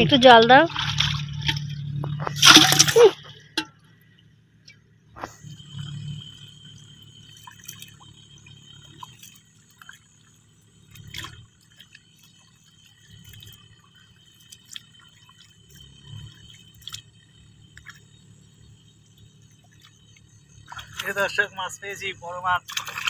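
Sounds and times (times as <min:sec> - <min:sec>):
small splashes and drips: 0:00.7 - 0:04.3, 0:05.4 - 0:23.0
hands squelching through mud: 0:02.3 - 0:03.2.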